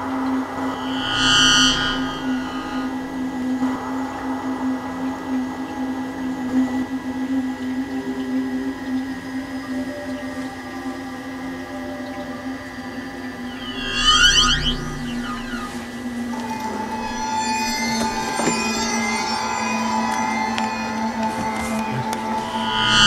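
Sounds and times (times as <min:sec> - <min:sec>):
low electronic drone: 0:00.0 - 0:04.4, 0:13.1 - 0:23.0
bright chiming tone: 0:13.4 - 0:23.0.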